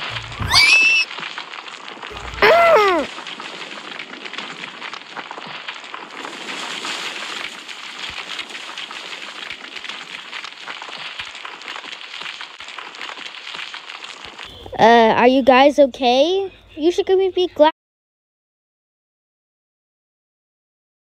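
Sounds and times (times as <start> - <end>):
lava bubbling and crackling: 0.0 - 15.2.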